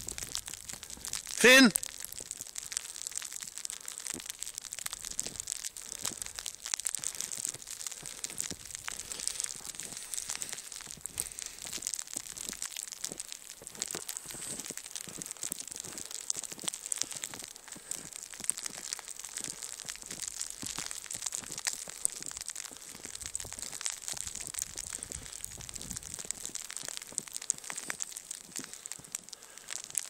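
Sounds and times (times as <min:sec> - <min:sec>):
footsteps crunching in snow: 0:08.3 - 0:11.8.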